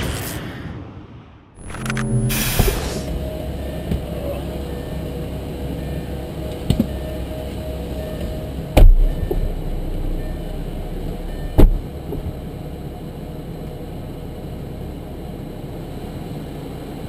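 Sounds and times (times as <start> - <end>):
low rumble: 0.0 - 17.0
car door heavy thumps: 8.8 - 9.4, 11.5 - 12.2.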